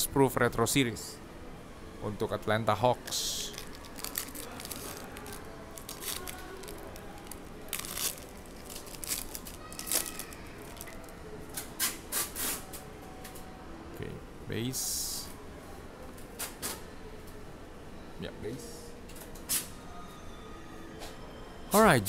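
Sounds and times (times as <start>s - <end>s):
cards being handled: 3.1s - 11.1s
wrapper tearing and crinkling: 3.1s - 11.1s.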